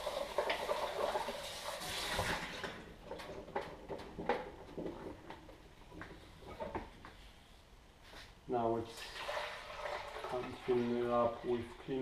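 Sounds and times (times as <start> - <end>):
water splashing in a sink: 0.0 - 2.9, 9.0 - 11.9.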